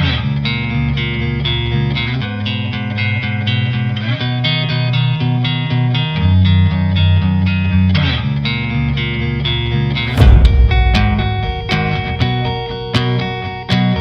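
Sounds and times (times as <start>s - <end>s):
bass line: 10.0s - 14.0s.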